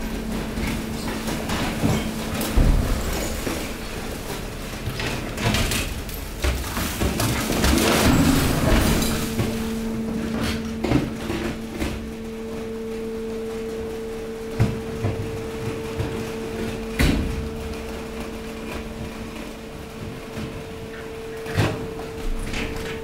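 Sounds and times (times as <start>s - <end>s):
compactor machine hum: 0.0s - 23.0s
sharp knocks of shifting waste: 0.2s - 12.0s.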